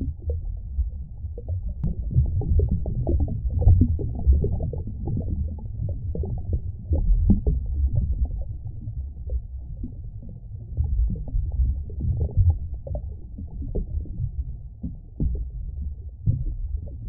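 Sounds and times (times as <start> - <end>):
muffled underwater rumbling: 0.0 - 17.0
bubbling pops: 1.4 - 8.4.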